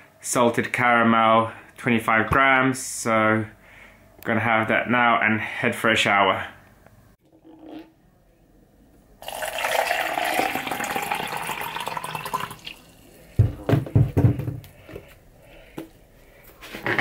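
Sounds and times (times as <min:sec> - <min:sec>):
water pouring into a plastic bottle: 0:09.2 - 0:13.0.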